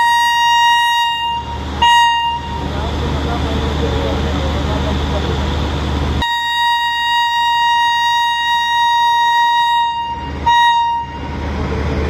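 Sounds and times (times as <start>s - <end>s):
locomotive horn: 0.0s - 2.7s, 6.2s - 11.4s.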